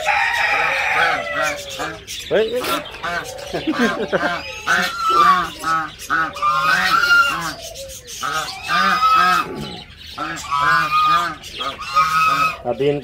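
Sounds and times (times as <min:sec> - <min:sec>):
geese honking: 0:00.0 - 0:13.0.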